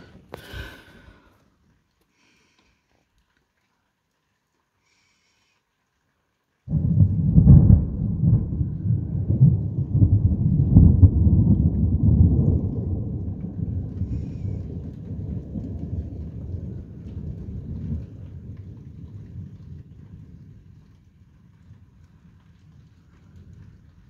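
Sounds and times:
thunder rumbling: 6.7s - 24.0s.

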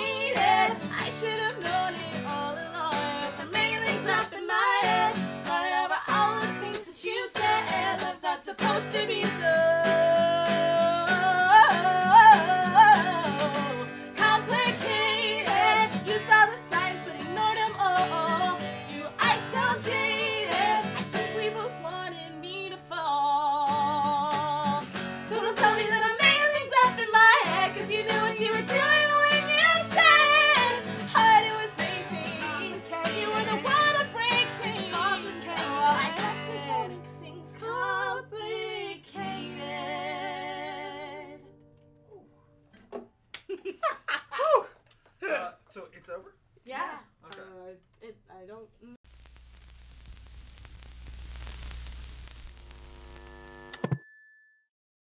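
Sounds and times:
two women singing: 0.0s - 41.5s.

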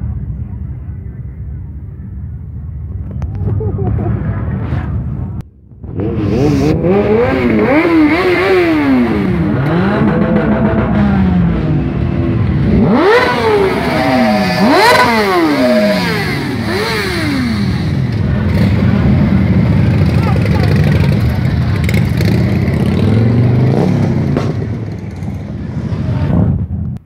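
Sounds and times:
motorcycle engines revving: 2.2s - 27.0s.

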